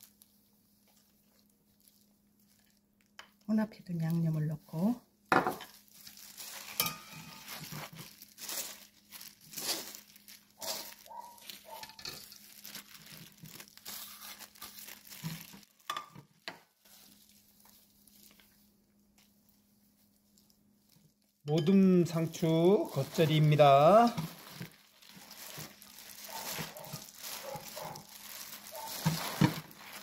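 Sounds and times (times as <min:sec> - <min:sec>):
lettuce leaves rustling: 0:05.6 - 0:15.9, 0:16.8 - 0:21.2, 0:22.0 - 0:30.0.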